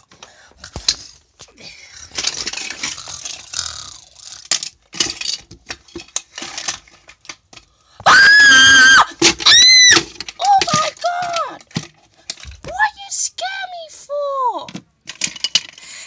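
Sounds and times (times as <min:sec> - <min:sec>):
rustling and handling noises: 0:00.0 - 0:16.0
high-pitched screams: 0:08.1 - 0:10.0.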